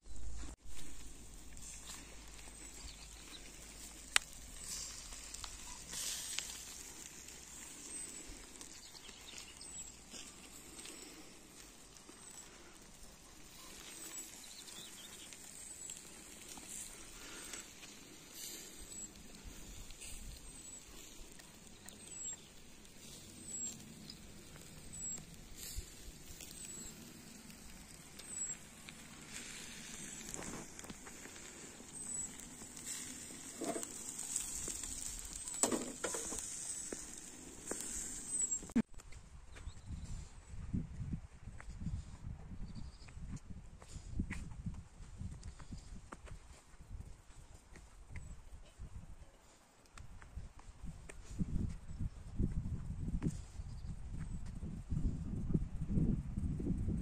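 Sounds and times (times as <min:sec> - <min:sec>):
small crackles: 0:00.1 - 0:40.6, 0:42.9 - 0:57.0
fish sizzling on a grill: 0:00.2 - 0:38.9.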